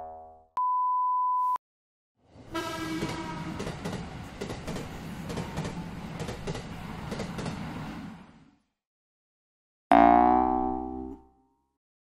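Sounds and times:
train wheels rumbling on rails: 2.4 - 8.4
clacking over rail joints: 3.0 - 7.6.

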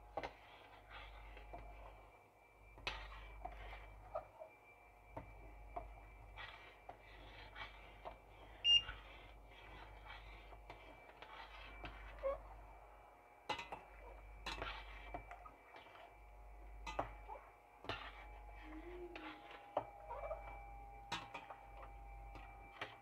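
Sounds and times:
faint high whine: 0.0 - 23.0
spoon stirring in saucepan: 5.1 - 12.7, 13.5 - 16.1, 16.8 - 23.0
high-pitched ring: 16.0 - 23.0.

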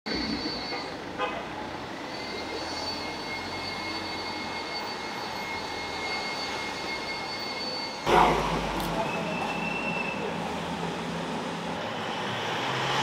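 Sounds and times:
high-pitched tone: 0.1 - 1.1
city traffic hum: 0.1 - 13.0.

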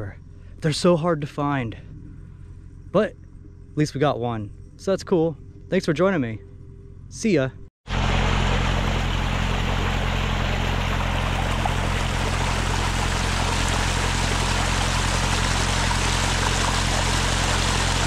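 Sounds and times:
steady low hum: 0.0 - 18.0
water cascading over rocks: 7.9 - 18.0.

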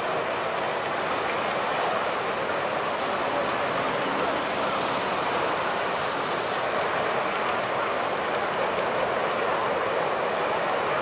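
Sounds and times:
rushing floodwater: 0.0 - 11.0.

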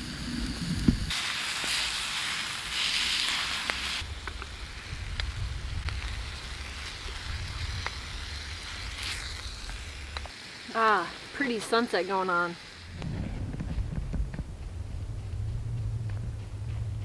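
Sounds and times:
meat sizzling in a skillet: 0.0 - 13.0.

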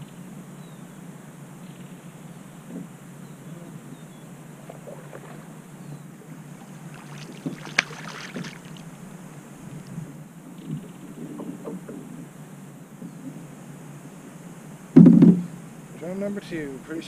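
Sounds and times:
low wind and water noise: 0.0 - 17.0
fish thrashing and splashing: 6.5 - 9.0
sharp slap on water: 7.0 - 8.8.

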